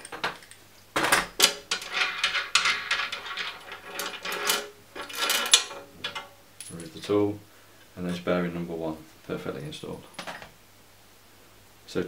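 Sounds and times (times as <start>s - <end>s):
metal parts clinking and scraping: 0.0s - 7.1s.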